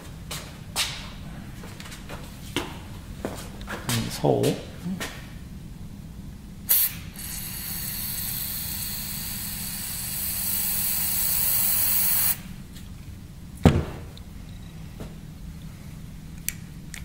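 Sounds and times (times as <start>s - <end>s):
aerosol spray hissing: 6.7s - 12.4s.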